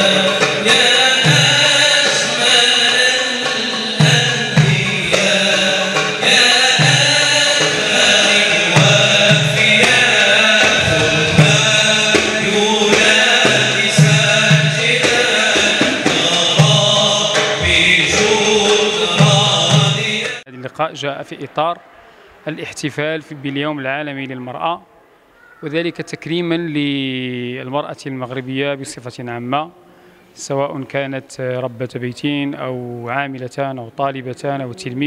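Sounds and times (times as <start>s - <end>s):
musical accompaniment: 0.0s - 20.4s
men singing chant-like song: 0.0s - 20.5s.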